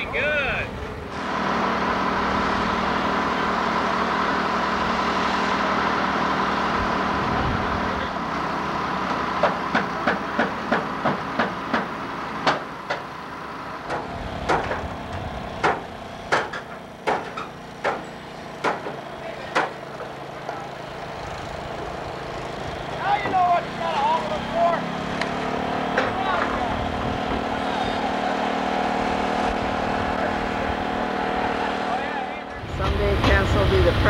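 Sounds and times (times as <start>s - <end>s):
crane engine running: 0.0s - 34.0s
sharp knocks: 13.9s - 14.9s, 15.6s - 18.0s, 18.6s - 20.1s.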